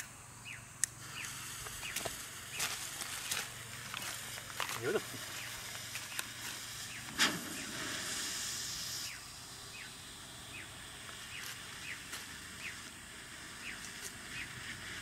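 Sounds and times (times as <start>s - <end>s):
smoke hissing out: 0.8s - 15.0s
firework pop: 7.1s - 9.1s.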